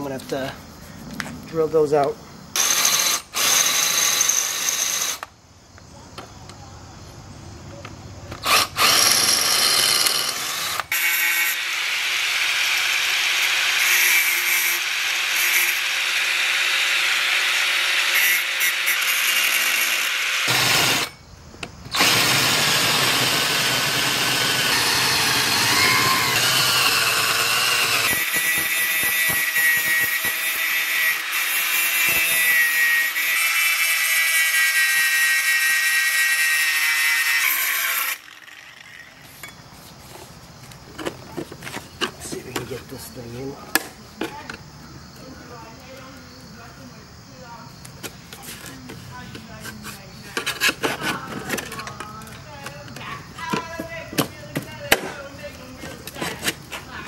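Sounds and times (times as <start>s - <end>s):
angle grinder cutting sheet metal: 8.4s - 21.2s, 22.0s - 39.2s.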